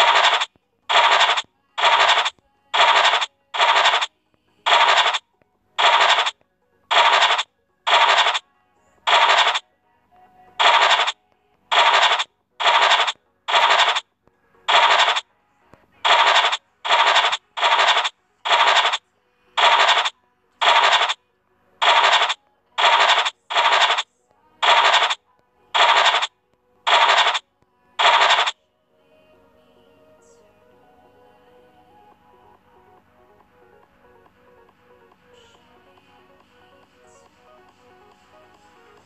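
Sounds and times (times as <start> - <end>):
scratch-off sound effect: 0.0 - 4.1, 4.7 - 5.2, 5.8 - 8.4, 9.1 - 9.6, 10.6 - 14.0, 14.7 - 15.2, 16.0 - 19.0, 19.6 - 21.2, 21.8 - 25.2, 25.8 - 26.3, 26.9 - 27.4, 28.0 - 28.6.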